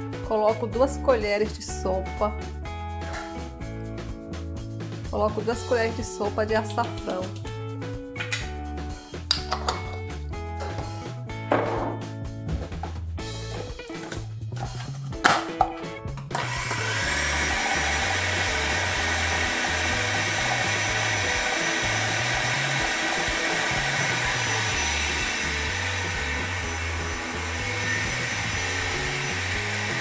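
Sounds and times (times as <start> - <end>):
food processor motor chopping: 16.3 - 30.0.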